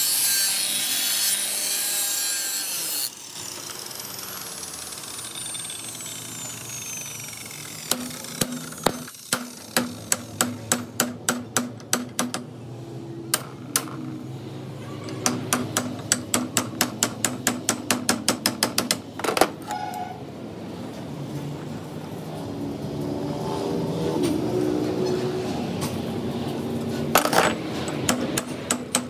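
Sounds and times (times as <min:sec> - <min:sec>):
hammer striking chisel on metal: 0:07.9 - 0:12.5, 0:15.1 - 0:19.1, 0:27.8 - 0:29.0.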